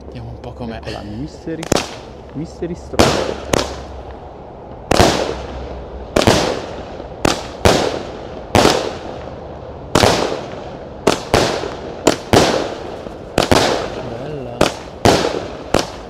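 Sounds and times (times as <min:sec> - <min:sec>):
firework bangs with echoes: 0:01.6 - 0:02.2, 0:02.9 - 0:03.9, 0:04.8 - 0:16.0.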